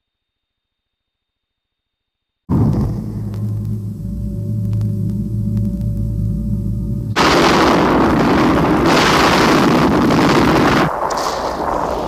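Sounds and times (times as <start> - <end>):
low drone: 2.5 - 11.1
volcanic eruption rumbling: 2.5 - 12.0.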